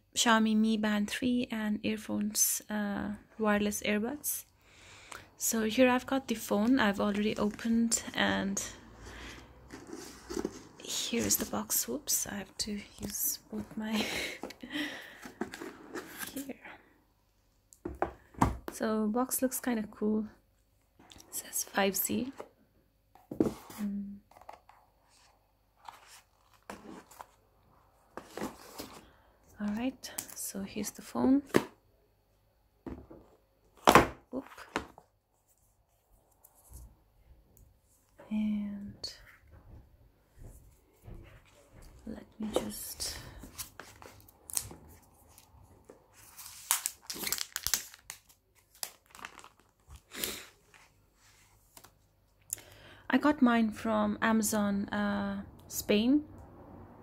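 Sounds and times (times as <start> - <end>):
paperboard scraping and rustling: 9.2 - 11.5, 15.3 - 16.4, 23.2 - 27.4, 28.1 - 29.1
plastic sleeve crinkling: 46.2 - 50.5.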